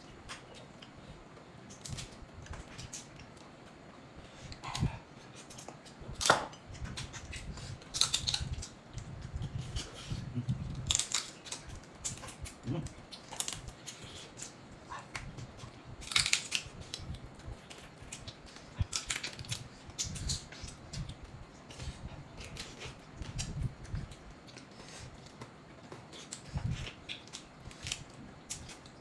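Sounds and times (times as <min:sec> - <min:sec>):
eating sounds: 0:06.7 - 0:29.0
crab shells cracking: 0:07.9 - 0:08.7, 0:10.8 - 0:13.8, 0:16.0 - 0:17.1, 0:17.7 - 0:20.4.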